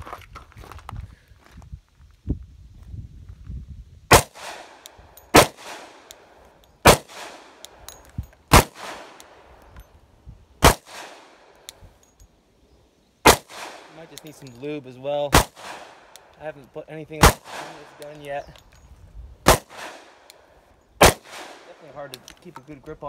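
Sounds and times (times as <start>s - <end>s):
pistol shots with echo: 4.1s - 6.2s, 6.8s - 7.8s, 8.5s - 9.4s, 10.6s - 11.5s, 13.2s - 14.4s, 15.3s - 16.3s, 17.2s - 18.2s, 19.4s - 20.3s, 21.0s - 22.2s.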